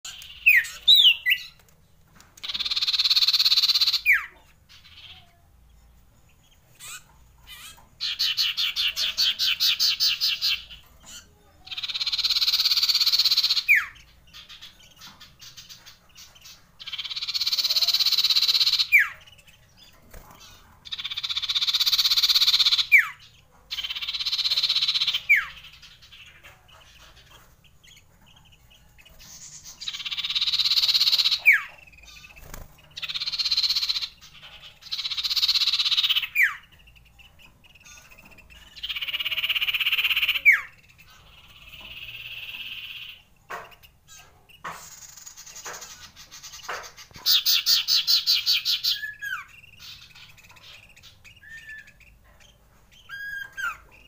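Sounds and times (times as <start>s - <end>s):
bird singing rolling trills: 0.0s - 1.7s, 2.4s - 54.0s.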